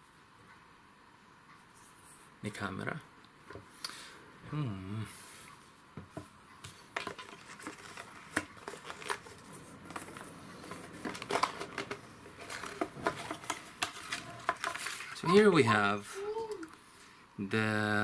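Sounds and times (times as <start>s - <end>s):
packaging clicks taps and crinkles: 6.9s - 15.2s.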